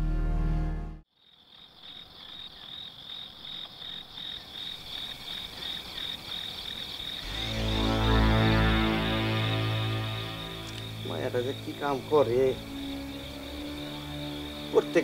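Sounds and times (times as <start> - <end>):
background music: 0.0 - 1.0, 7.2 - 15.0
crickets chirping: 1.1 - 15.0.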